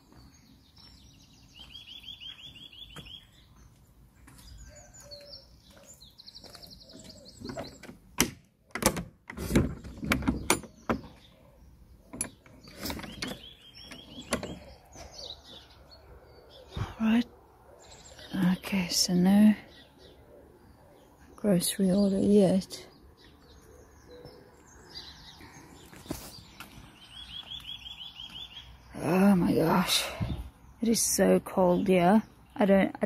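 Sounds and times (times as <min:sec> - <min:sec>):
songbird trilling: 0:00.3 - 0:03.7, 0:04.4 - 0:07.9, 0:10.6 - 0:33.0
gate latch clicking and knocking: 0:07.5 - 0:11.2.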